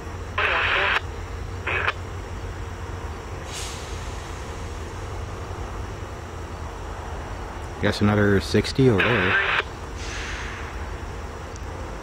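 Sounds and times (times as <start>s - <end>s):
locomotives idling: 0.0s - 12.0s.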